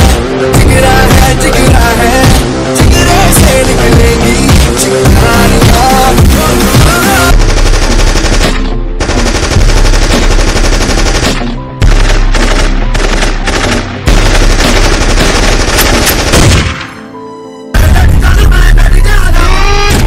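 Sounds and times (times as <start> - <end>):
music track: 0.0 - 20.0
machine-gun fire: 7.3 - 17.0.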